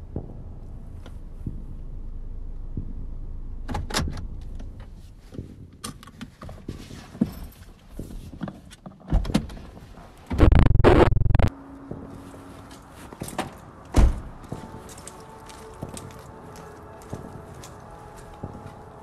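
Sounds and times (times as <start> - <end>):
loud harsh noise: 10.4 - 11.5.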